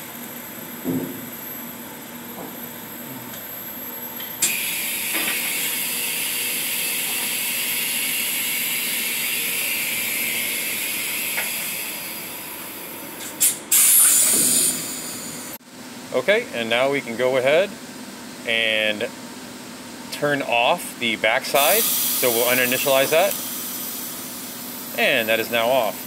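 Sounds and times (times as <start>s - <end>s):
steady air hiss: 21.6s - 25.9s.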